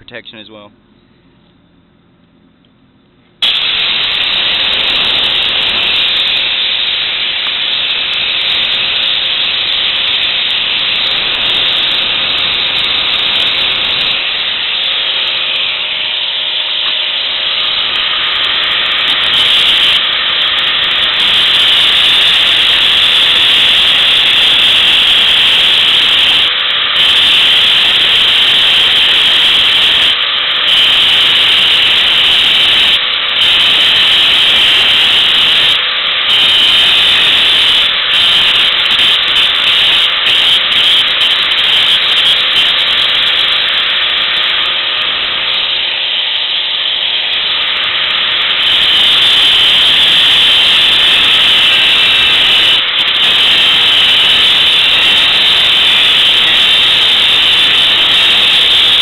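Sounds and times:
faint motor whine: 0.0s - 59.0s
electric grinder grinding steel: 3.4s - 59.0s.

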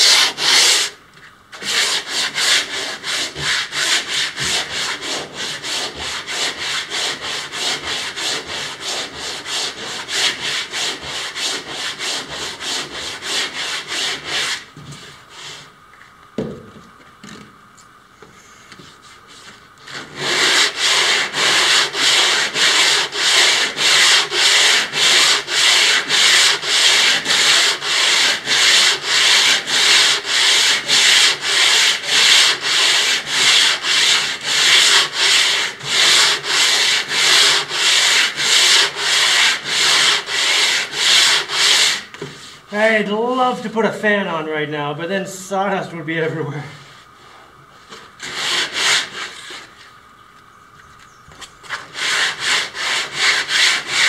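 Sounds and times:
sandpaper rasping on wood: 0.0s - 1.0s, 1.6s - 15.7s, 18.9s - 42.9s, 48.2s - 49.7s, 51.6s - 54.0s.

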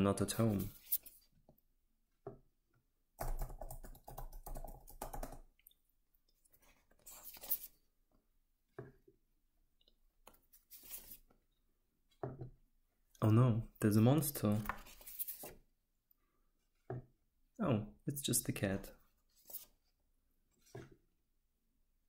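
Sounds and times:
paper rustling: 6.6s - 7.8s, 10.5s - 11.2s, 14.5s - 15.6s, 19.3s - 19.8s.

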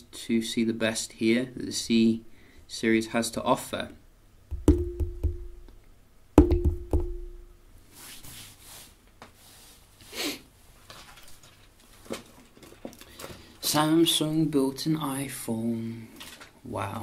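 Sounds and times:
fingers drumming on wooden table: 4.5s - 5.7s, 6.4s - 7.4s.

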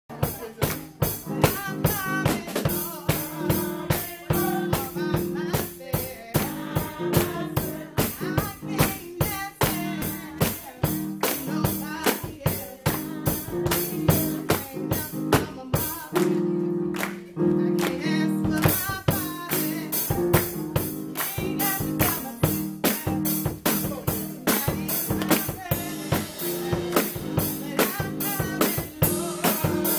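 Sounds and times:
drum kit beat: 0.1s - 29.9s
woman singing gospel: 0.1s - 29.9s.

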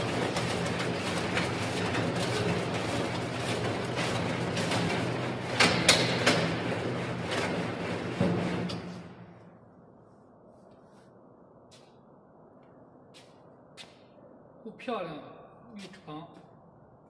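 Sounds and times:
machine motor humming: 0.0s - 9.3s.

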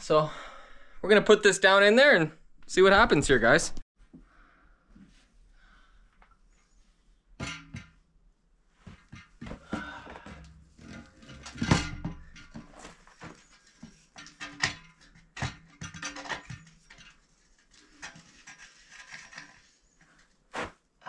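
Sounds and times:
metal pipe knocking and clanking: 7.4s - 8.0s, 8.9s - 19.7s.

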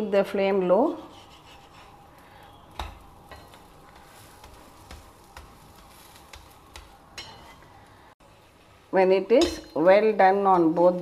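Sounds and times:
flatbread sizzling on griddle: 0.8s - 8.9s.

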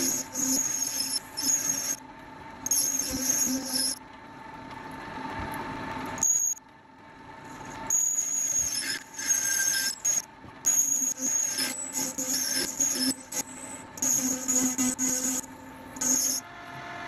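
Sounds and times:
lathe tool squealing chatter: 0.0s - 2.0s, 2.7s - 4.0s, 7.8s - 17.0s
lathe running hum: 6.9s - 17.0s.

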